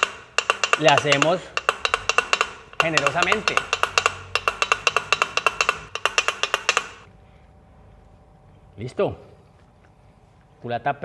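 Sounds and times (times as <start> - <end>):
engine valve tapping on its seat: 0.0 - 7.1.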